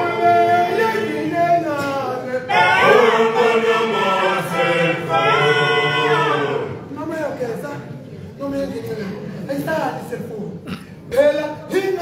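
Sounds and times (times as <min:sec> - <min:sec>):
male choir singing in harmony: 0:00.0 - 0:01.7, 0:02.4 - 0:06.9.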